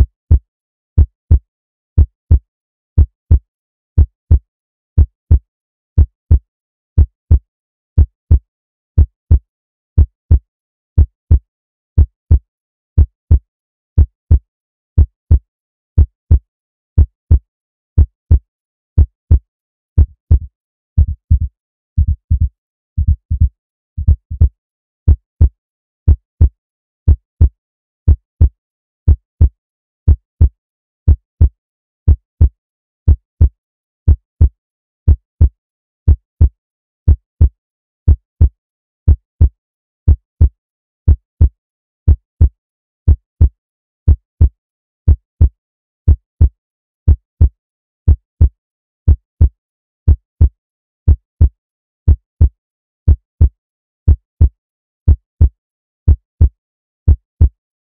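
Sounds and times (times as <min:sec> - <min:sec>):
heartbeat thumps: 0:20.0 - 0:25.2.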